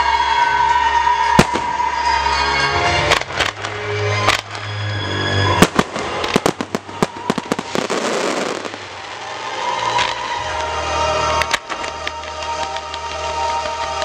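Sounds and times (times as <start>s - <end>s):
music: 0.0s - 14.0s
fireworks bangs: 1.4s - 2.2s, 5.5s - 10.7s
fireworks crackling: 1.4s - 14.0s.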